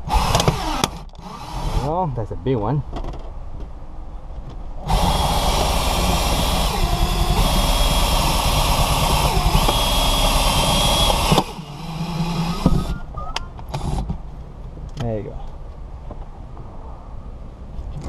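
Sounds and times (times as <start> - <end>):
cordless drill whining: 0.0 - 1.9, 4.8 - 13.1, 13.7 - 14.1.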